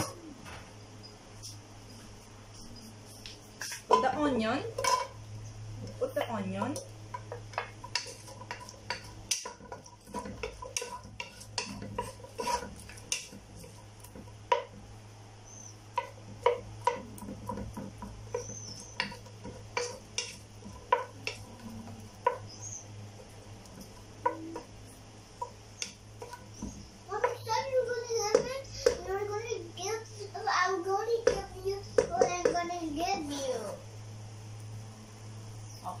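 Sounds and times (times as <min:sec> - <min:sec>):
onions sizzling in oil: 0:02.8 - 0:30.5
spatula scraping a pot: 0:03.6 - 0:05.2, 0:05.8 - 0:14.8, 0:16.0 - 0:27.6.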